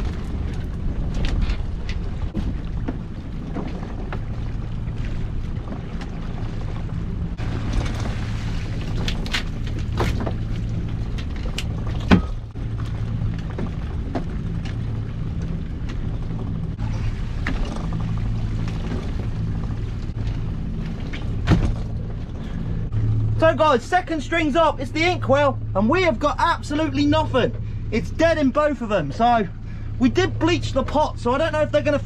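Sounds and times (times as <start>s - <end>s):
rope creaking and clicking: 0.0s - 4.3s, 8.8s - 16.4s
gear knocking against hull: 0.0s - 8.2s
boat engine hum: 0.0s - 32.0s.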